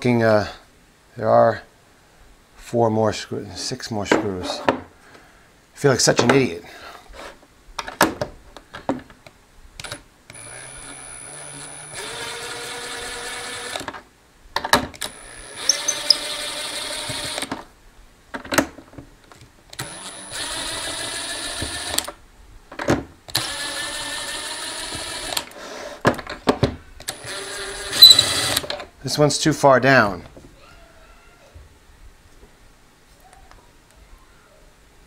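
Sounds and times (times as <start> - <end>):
power screwdriver motor whine: 10.3 - 13.9, 15.0 - 17.5, 19.8 - 22.1, 23.3 - 25.5, 27.0 - 28.6.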